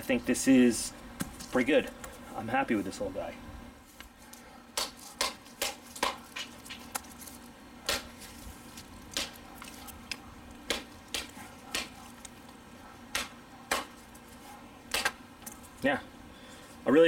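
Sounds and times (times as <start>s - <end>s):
hatchet chopping wood: 4.7s - 6.8s, 7.8s - 8.2s, 9.1s - 9.4s, 10.6s - 12.0s, 13.1s - 14.0s, 14.9s - 15.2s.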